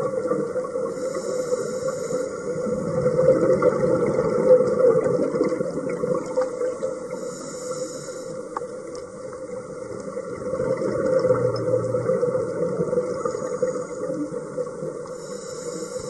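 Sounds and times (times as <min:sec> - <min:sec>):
underwater bubbles gurgling: 0:00.0 - 0:16.0.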